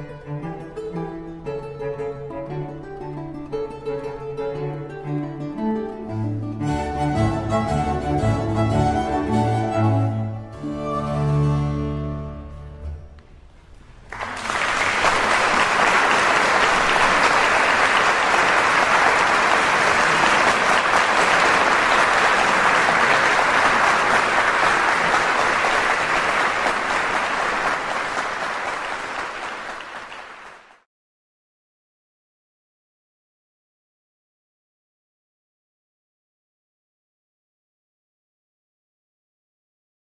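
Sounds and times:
harpsichord and strings piece: 0:00.0 - 0:13.1
audience applause: 0:14.0 - 0:30.8.

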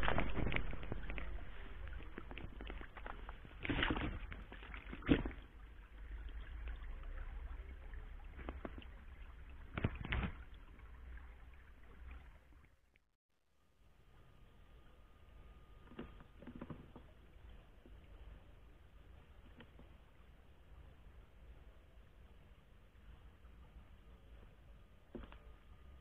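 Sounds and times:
stream running over stones: 0:00.0 - 0:12.9.

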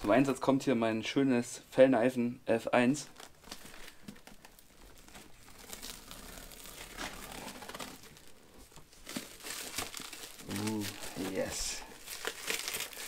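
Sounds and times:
paper and tape crinkling and tearing: 0:02.9 - 0:13.0.

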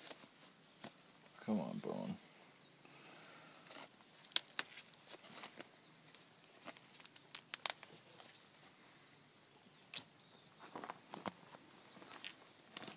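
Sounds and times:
skin and sinew tearing: 0:06.9 - 0:08.0.

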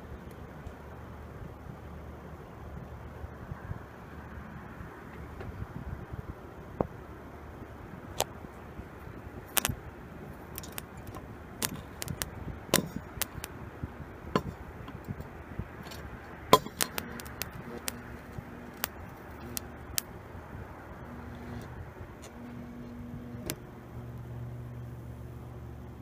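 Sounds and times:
faint steady hum: 0:00.0 - 0:26.0
sharp metallic clicks and snaps: 0:09.5 - 0:09.8, 0:10.5 - 0:13.6, 0:14.4 - 0:20.1.

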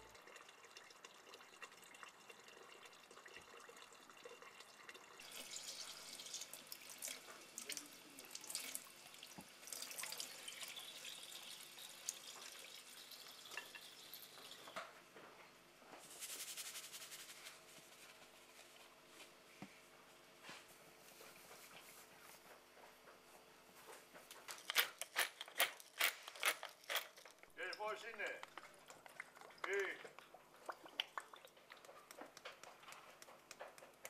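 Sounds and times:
small clinks and drips: 0:00.1 - 0:14.8, 0:24.5 - 0:34.0.

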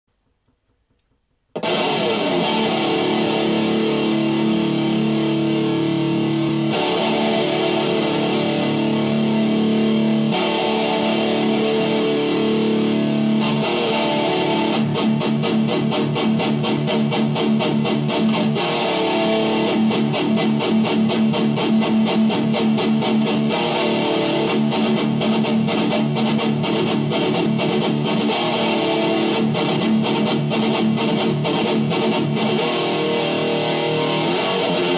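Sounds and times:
distorted electric guitar riffs: 0:01.5 - 0:34.9.

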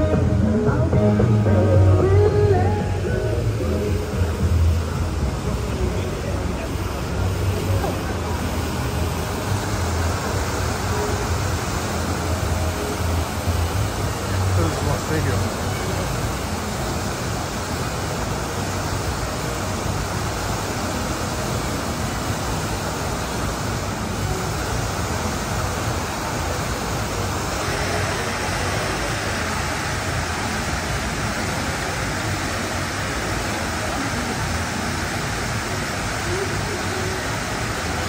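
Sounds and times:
waterfall rushing into pool: 0:00.0 - 0:38.0.

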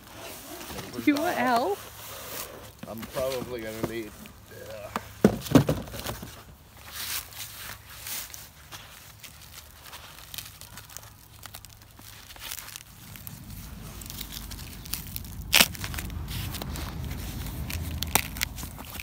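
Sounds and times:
packaging wrap crinkling and tearing: 0:07.0 - 0:19.0
sharp crack: 0:10.2 - 0:19.0
low rumble: 0:11.7 - 0:19.0.

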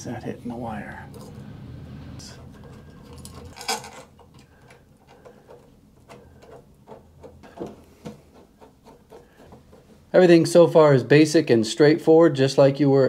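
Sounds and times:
metal clicks and rattling: 0:02.4 - 0:10.0.

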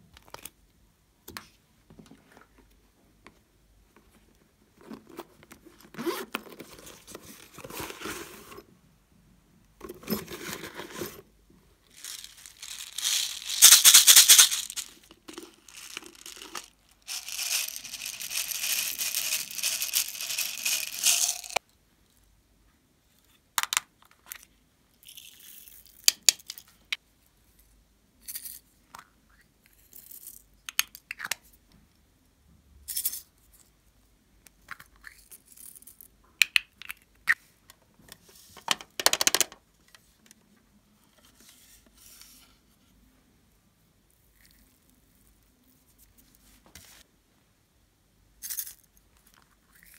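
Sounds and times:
beads pouring from a bottle: 0:11.9 - 0:21.6
rattling and crinkling: 0:11.9 - 0:21.6.

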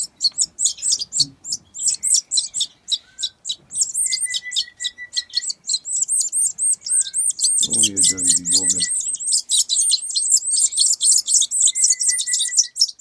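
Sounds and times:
bird chicks chirping: 0:00.0 - 0:13.0.

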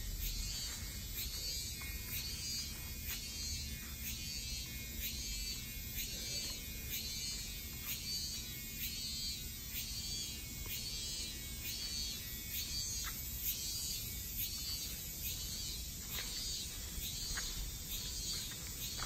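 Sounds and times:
cicada buzzing: 0:00.0 - 0:19.0.

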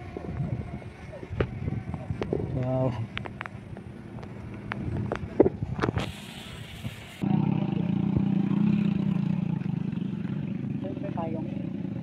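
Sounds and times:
low motor hum: 0:00.0 - 0:12.0
burst of hiss: 0:06.0 - 0:07.2.

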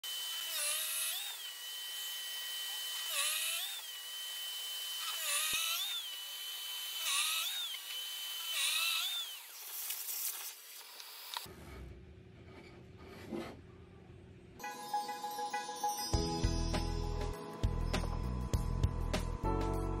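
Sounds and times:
power drill boring into wood: 0:00.0 - 0:09.6.

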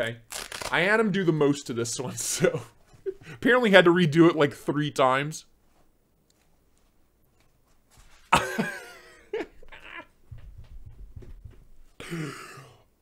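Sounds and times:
man chuckling: 0:02.3 - 0:03.4, 0:08.3 - 0:10.3, 0:12.0 - 0:12.8.

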